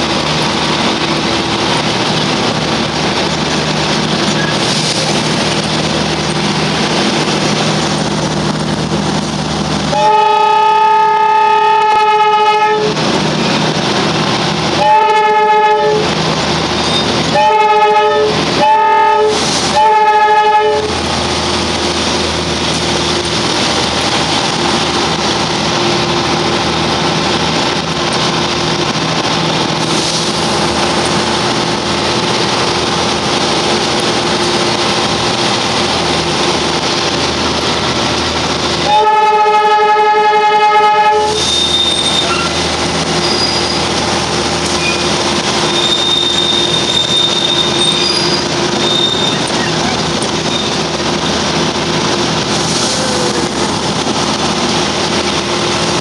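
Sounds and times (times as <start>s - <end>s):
train engine and running noise: 0.0s - 56.0s
train horn blasts: 9.9s - 13.0s, 14.8s - 16.2s, 17.3s - 21.0s, 38.8s - 42.6s.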